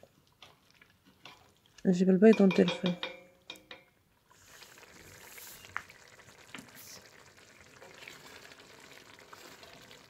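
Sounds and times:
sauce bubbling in a pot: 0.0 - 1.9, 4.1 - 10.0
wooden spoon knocking on pot: 2.2 - 3.9.

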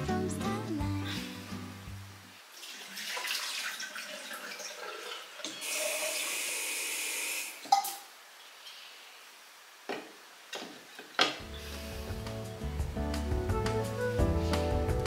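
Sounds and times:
water splashing in sink: 2.5 - 6.3.

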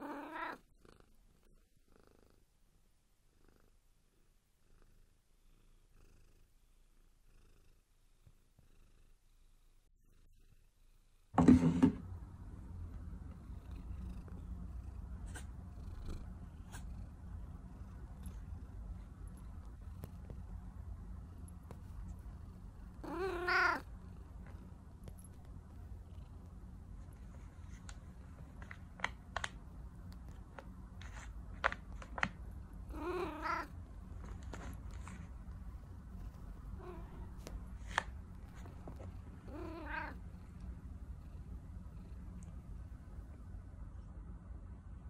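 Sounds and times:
cat meowing: 0.0 - 0.6, 23.0 - 23.8, 32.9 - 33.7, 39.5 - 40.2
cat purring: 0.0 - 11.4, 12.3 - 44.1.

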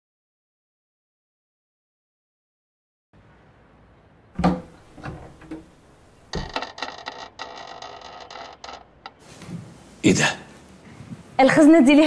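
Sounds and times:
wooden frame knocking on wall: 4.4 - 5.7
frame swinging open with thump: 4.4 - 7.2
grating rattling scrape: 4.7 - 9.2.

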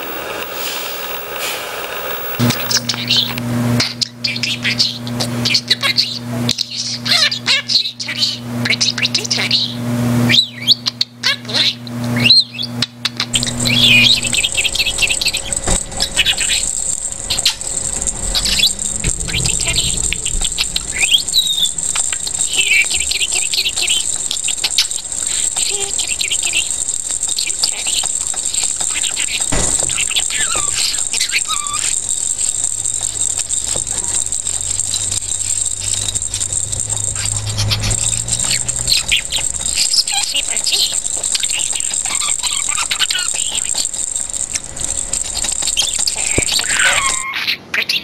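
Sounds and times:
budgerigar chirping and warbling: 10.3 - 48.0.

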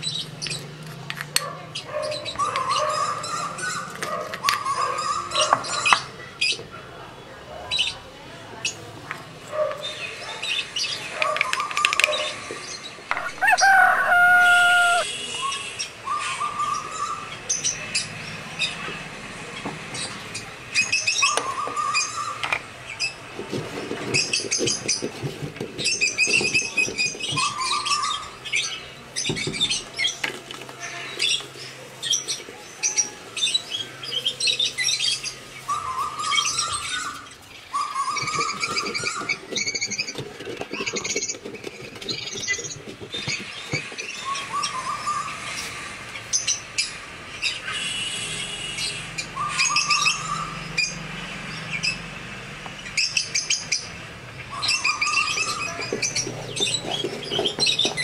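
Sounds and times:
birds chirping: 0.0 - 58.0
low rising bird call: 13.1 - 15.1.

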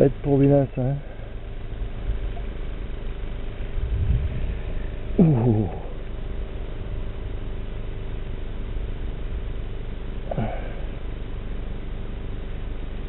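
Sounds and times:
steady low hum: 0.0 - 13.0
man grunting: 5.2 - 6.0.

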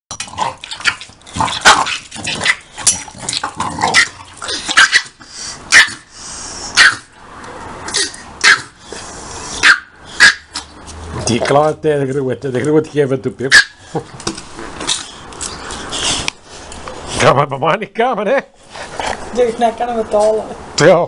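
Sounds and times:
dogs growling: 0.2 - 5.0
dogs barking: 3.8 - 6.1, 6.7 - 7.2, 7.9 - 8.8, 9.6 - 10.7, 13.5 - 14.0.

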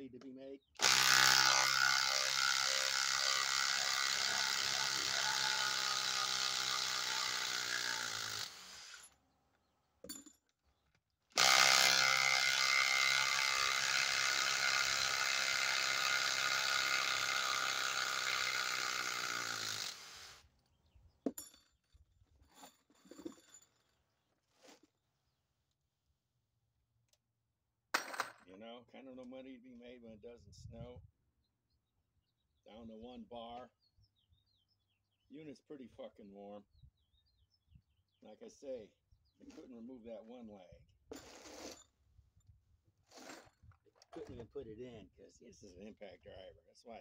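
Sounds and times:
impact driver hammering screws: 0.8 - 9.2, 11.3 - 20.4.

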